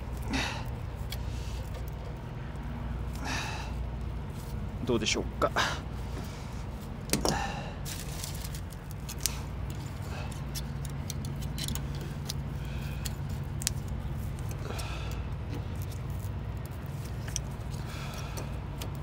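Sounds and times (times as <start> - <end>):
low mechanical hum: 0.0 - 19.0
light clicks and rattles: 8.1 - 19.0.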